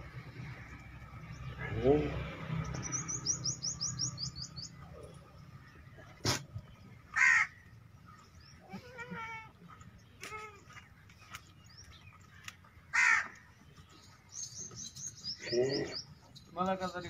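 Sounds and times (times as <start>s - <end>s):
high bird chirps: 2.6s - 5.1s.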